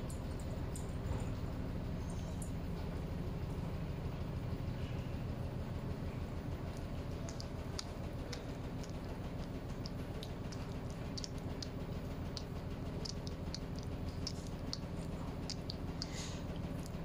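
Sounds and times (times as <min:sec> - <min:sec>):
steady low hum: 0:00.0 - 0:17.0
cat claws clicking on tiles: 0:07.1 - 0:17.0.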